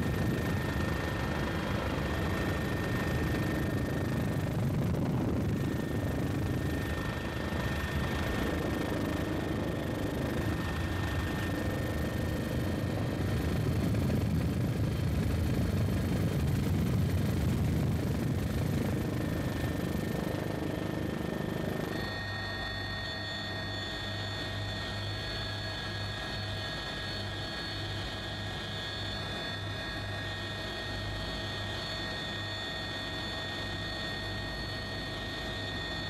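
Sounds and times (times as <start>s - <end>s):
high whine: 0.0s - 24.1s
helicopter engine and rotor rumble: 0.0s - 36.0s.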